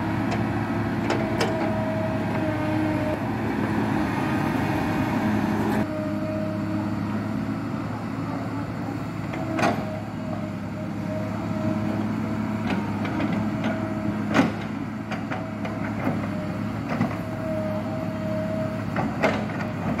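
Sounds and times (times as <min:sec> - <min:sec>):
excavator diesel engine running: 0:00.0 - 0:20.0
high engine tone: 0:00.0 - 0:20.0.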